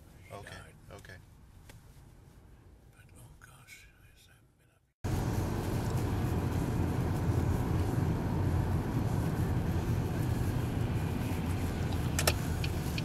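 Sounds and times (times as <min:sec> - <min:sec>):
car engine and tyres rumbling: 0:05.0 - 0:13.0
turn signal ticking: 0:05.4 - 0:13.0.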